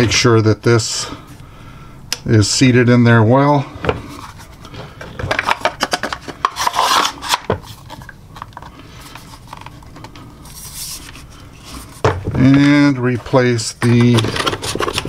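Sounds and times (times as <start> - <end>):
shotgun parts clicking and scraping: 4.2 - 10.2, 12.5 - 15.0.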